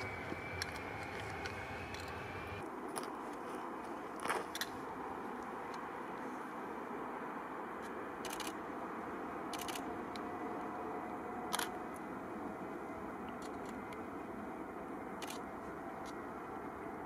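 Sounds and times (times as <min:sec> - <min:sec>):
distant jet engine noise: 0:00.0 - 0:17.0
camera shutter clicks: 0:08.2 - 0:08.6, 0:09.5 - 0:09.8.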